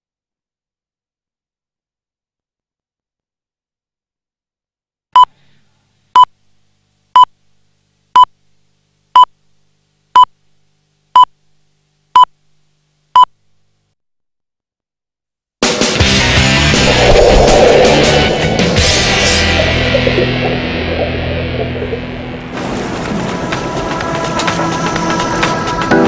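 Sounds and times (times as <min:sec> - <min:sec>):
short electronic beeps: 0:05.2 - 0:05.4.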